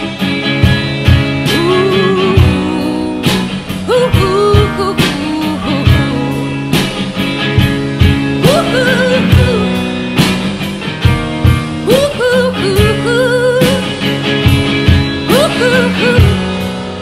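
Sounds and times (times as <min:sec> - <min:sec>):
electric guitar: 0:00.0 - 0:17.0
steady drum beat: 0:00.0 - 0:17.0
woman singing: 0:01.2 - 0:07.0, 0:08.4 - 0:10.0, 0:11.8 - 0:17.0.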